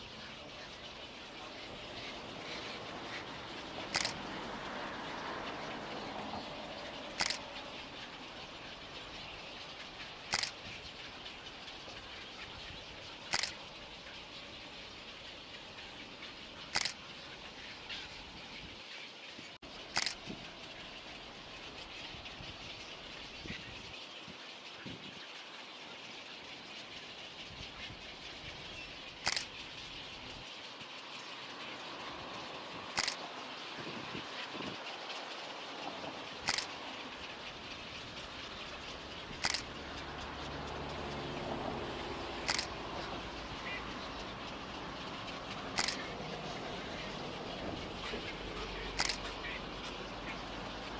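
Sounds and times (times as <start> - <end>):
outdoor background hiss: 0.0 - 50.9
camera shutter clicks: 3.9 - 4.2, 7.2 - 7.4, 10.3 - 10.6, 13.3 - 13.6, 16.7 - 17.0, 20.0 - 20.2, 29.2 - 29.5, 33.0 - 33.2, 36.5 - 36.7, 39.4 - 39.6, 42.5 - 42.7, 45.8 - 46.0, 49.0 - 49.2.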